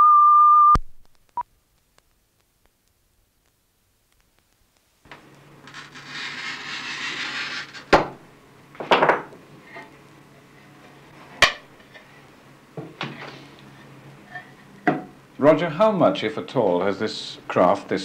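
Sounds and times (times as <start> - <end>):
scratchy hiss: 1.2 - 8.0.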